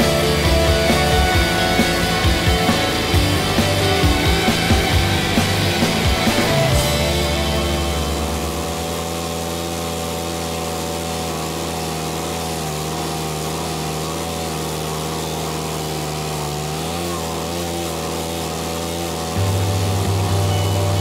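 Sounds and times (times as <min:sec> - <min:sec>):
stump grinder engine grinding wood: 0:00.0 - 0:21.0.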